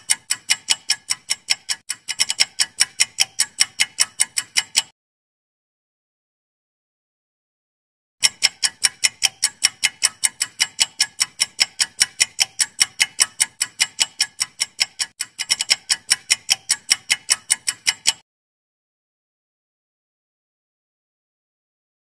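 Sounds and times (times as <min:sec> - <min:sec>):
fast clock ticking: 0:00.0 - 0:04.9, 0:08.2 - 0:18.2.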